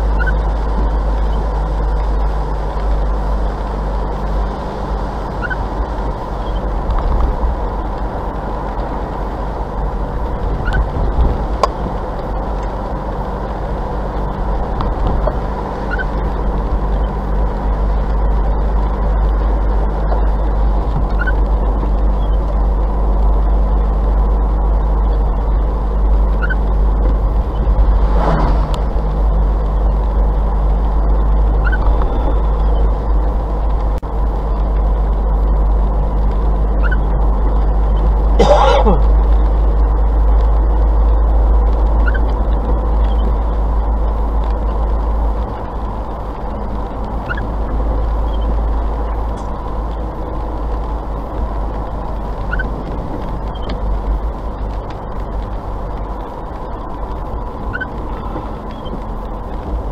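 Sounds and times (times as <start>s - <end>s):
windscreen wipers squeaking: 0.0s - 2.4s, 3.1s - 59.9s
car interior road and engine noise: 0.0s - 59.9s
passing vehicle whoosh: 26.4s - 32.6s.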